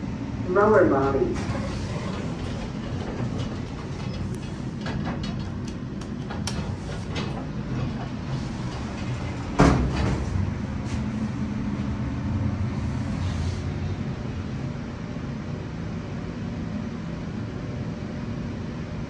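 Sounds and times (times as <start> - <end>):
elevator hum: 0.0 - 19.0
elevator doors sliding shut: 0.5 - 14.8.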